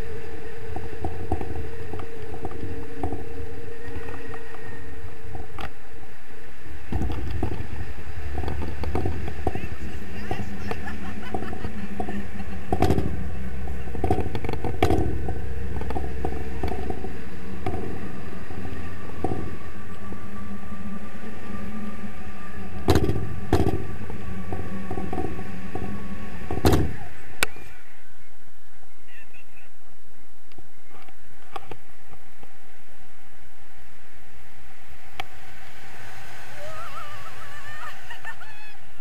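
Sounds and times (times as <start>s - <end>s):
wind buffeting microphone: 0.0s - 29.2s.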